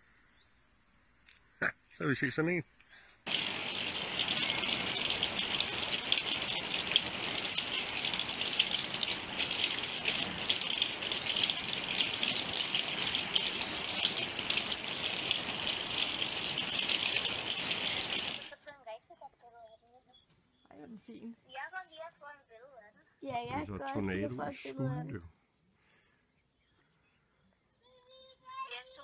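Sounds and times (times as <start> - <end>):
heavy rain falling: 3.3 - 18.6.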